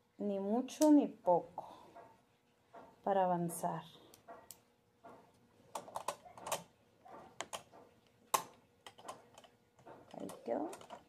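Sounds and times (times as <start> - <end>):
sewing machine parts clicking: 8.4 - 11.0.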